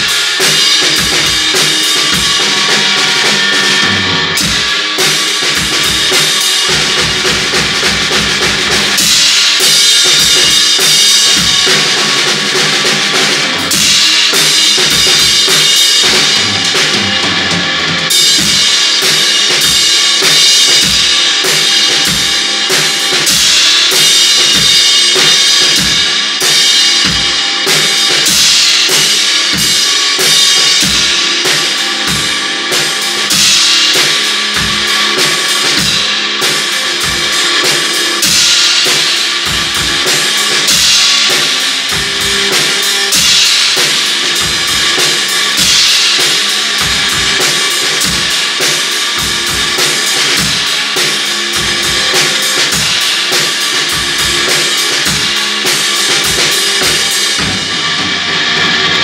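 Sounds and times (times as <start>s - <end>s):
cymbals washing: 0.0s - 59.0s
distorted electric guitar: 0.0s - 59.0s
drum kit beat: 0.0s - 59.0s.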